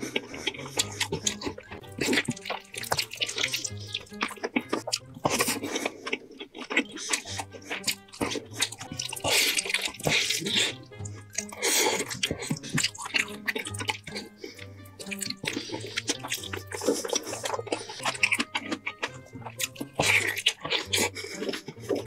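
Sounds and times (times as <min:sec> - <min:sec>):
wet chewing and lip-smacking: 0:00.0 - 0:22.0
background music with bass line: 0:07.3 - 0:22.0.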